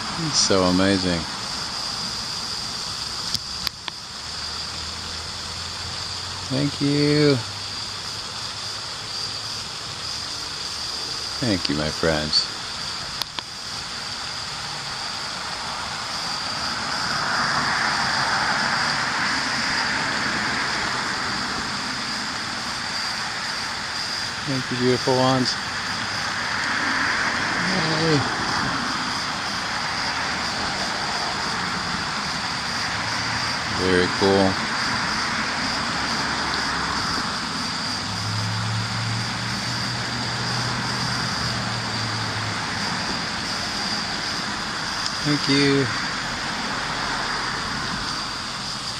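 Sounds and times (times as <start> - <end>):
steady outdoor hiss: 0.0 - 48.9
thin high tone: 6.0 - 46.4
vehicle passing: 15.6 - 22.3, 24.5 - 48.4.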